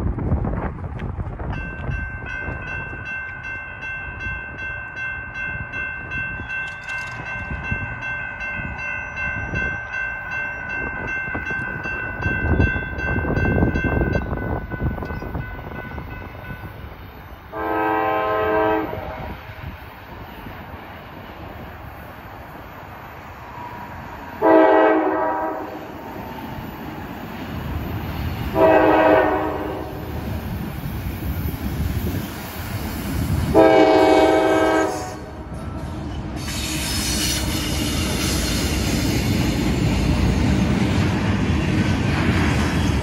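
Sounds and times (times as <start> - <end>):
wind rumbling on microphone: 0.0 - 4.7, 5.4 - 17.6, 18.4 - 22.1, 25.7 - 43.0
crossing warning bell ringing: 1.4 - 20.8, 24.4 - 36.3
locomotive air horn blast: 17.5 - 19.5, 24.4 - 25.9, 28.5 - 30.0, 33.5 - 35.4.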